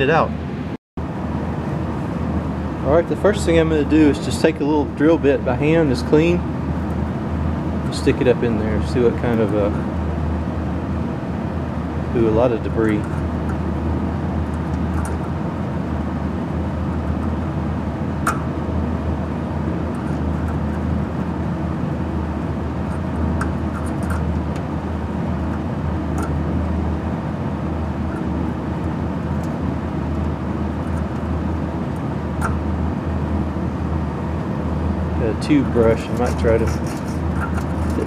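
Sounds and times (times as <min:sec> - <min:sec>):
machinery humming: 0:00.0 - 0:38.0.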